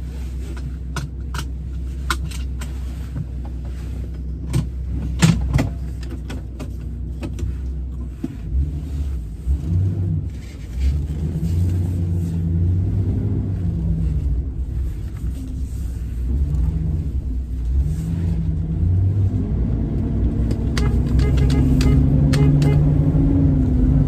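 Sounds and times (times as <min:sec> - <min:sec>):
truck engine running: 0:10.4 - 0:24.0
seatbelt clicks: 0:20.4 - 0:22.8.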